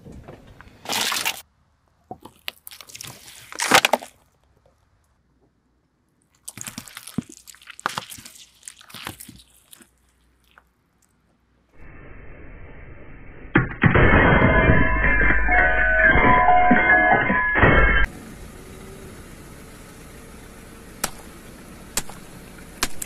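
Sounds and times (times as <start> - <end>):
tyre crushing eggs and fruit: 0.8 - 1.4, 2.0 - 4.6, 6.3 - 11.1, 21.0 - 23.0.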